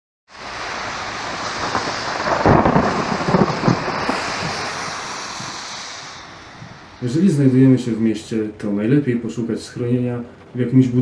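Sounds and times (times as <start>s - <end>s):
thunder cracking and rumbling: 0.3s - 8.3s
steady rain hiss: 0.3s - 11.0s.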